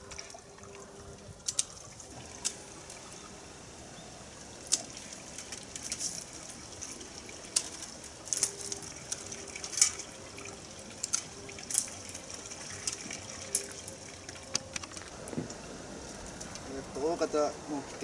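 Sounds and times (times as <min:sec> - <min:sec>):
pruning shears snipping: 0:01.4 - 0:02.7, 0:04.6 - 0:10.2, 0:11.0 - 0:15.2.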